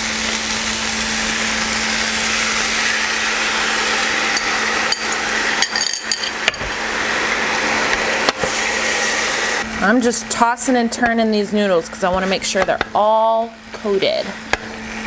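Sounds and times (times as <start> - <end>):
food sizzling in a wok: 0.0 - 10.7.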